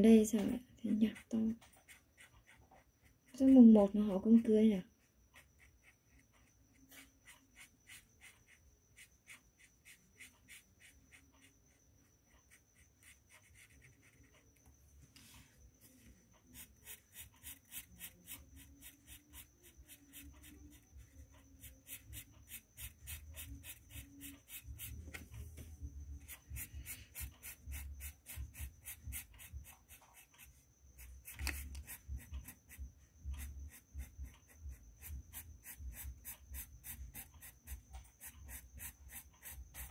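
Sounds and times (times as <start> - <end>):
faint high whine: 0.0 - 39.9
pen scribbling on paper: 5.4 - 11.6, 12.3 - 14.6, 16.5 - 25.2, 26.2 - 39.9.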